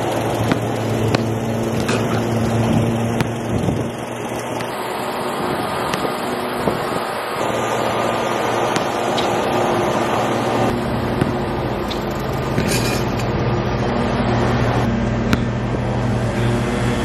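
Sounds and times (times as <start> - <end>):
steady motor hum: 0.0 - 17.0
basketball knocking: 0.4 - 3.9, 5.9 - 6.8, 8.7 - 9.3, 11.2 - 12.8.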